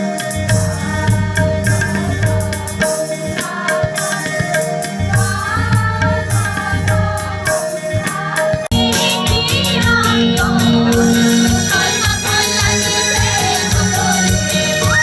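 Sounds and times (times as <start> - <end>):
drum beat: 0.0 - 15.0
women singing together: 3.4 - 15.0
steady held note: 8.7 - 15.0.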